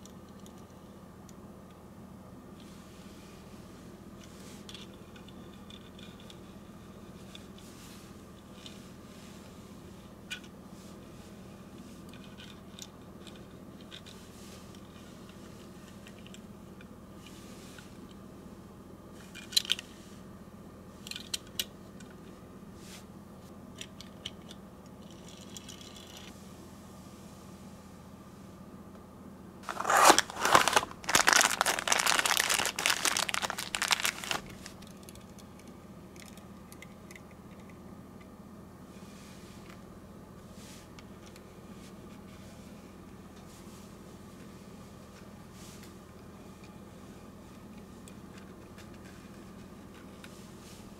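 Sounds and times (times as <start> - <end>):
low background hum: 0.0 - 50.9
packaging crinkling and tearing: 29.6 - 34.9.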